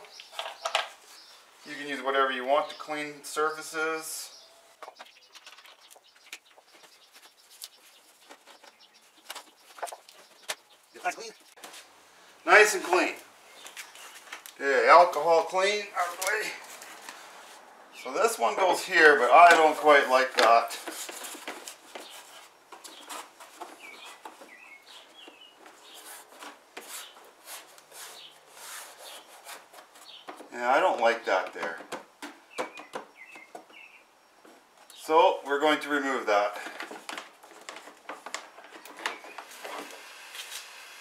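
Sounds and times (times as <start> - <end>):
bird chirps: 0.0 - 11.6, 22.0 - 26.1, 32.4 - 35.5.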